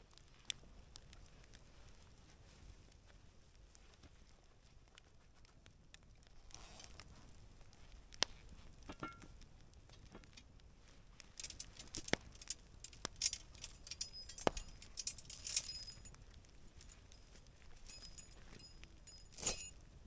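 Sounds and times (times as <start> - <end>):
steel chain clinking and jangling: 11.4 - 19.8.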